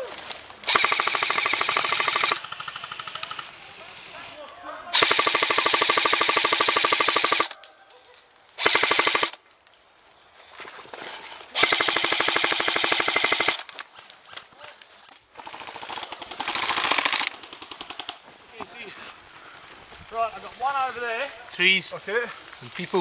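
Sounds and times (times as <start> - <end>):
airsoft rifle full-auto bursts: 0.6 - 3.4, 4.9 - 7.6, 8.6 - 9.4, 11.6 - 13.7, 15.4 - 18.2.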